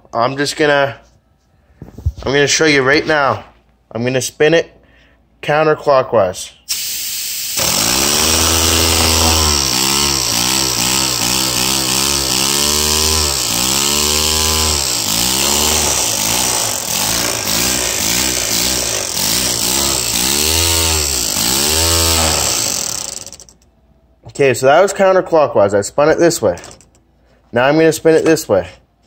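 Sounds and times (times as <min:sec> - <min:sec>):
air hissing: 0:06.7 - 0:11.6
pneumatic toy engine running: 0:06.7 - 0:23.6, 0:26.6 - 0:26.9.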